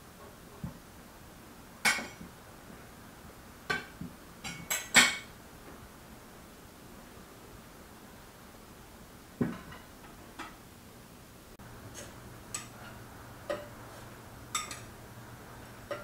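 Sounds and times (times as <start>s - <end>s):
platters clinking against plates: 12.0s - 13.7s, 14.5s - 14.9s.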